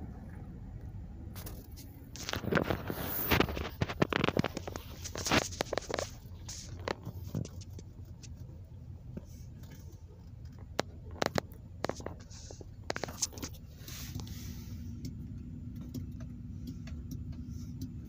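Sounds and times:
road rumble inside car: 0:00.0 - 0:18.0
sharp clicks and rustles: 0:01.3 - 0:18.0.

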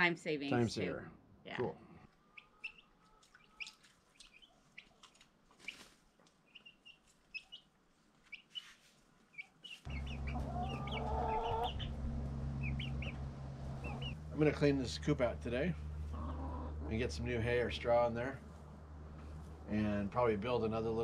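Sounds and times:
baby chicks peeping: 0:02.2 - 0:05.0, 0:05.6 - 0:07.7, 0:08.3 - 0:14.2
hens clucking: 0:09.8 - 0:14.2, 0:15.8 - 0:17.3
steady low hum: 0:09.9 - 0:20.7.

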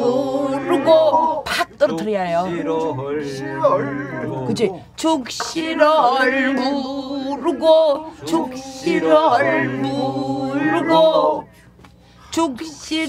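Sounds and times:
man and woman singing unaccompanied: 0:00.0 - 0:11.8.

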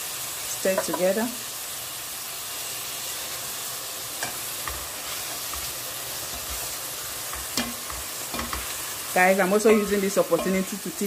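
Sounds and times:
meat sizzling in a pot: 0:00.0 - 0:11.0
spoon stirring in a pot: 0:04.2 - 0:10.8.

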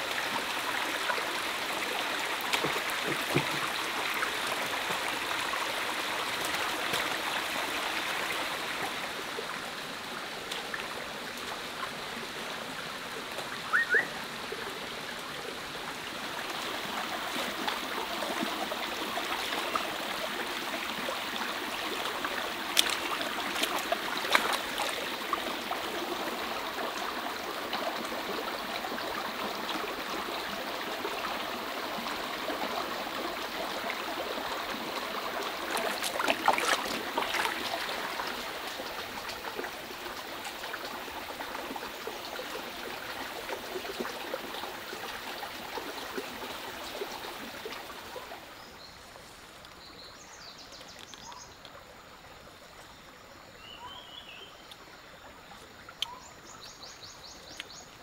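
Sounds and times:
stream flowing over stones: 0:00.0 - 0:58.0
high chirp: 0:13.7 - 0:14.1.

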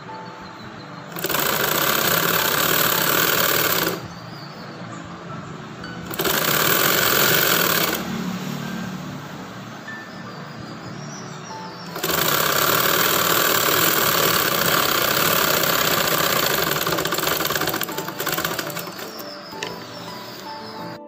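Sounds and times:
sewing machine stitching: 0:01.1 - 0:04.1, 0:06.0 - 0:08.4, 0:11.8 - 0:20.8.

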